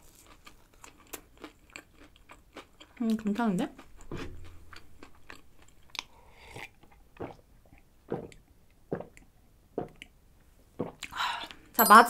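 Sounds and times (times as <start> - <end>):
swallowing gulps: 5.9 - 11.2.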